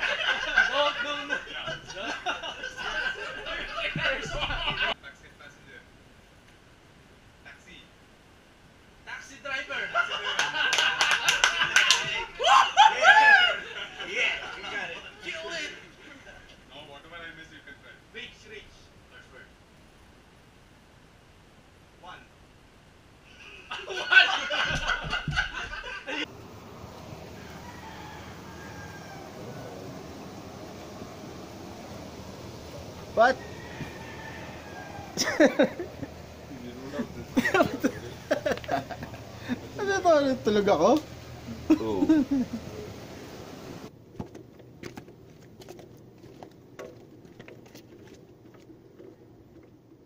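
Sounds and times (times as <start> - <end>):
men laughing loudly: 0.0 - 5.0, 9.7 - 15.3, 23.3 - 26.3, 35.0 - 40.0, 41.5 - 42.9
low background hiss: 0.0 - 44.2
faint background noise: 0.0 - 50.0.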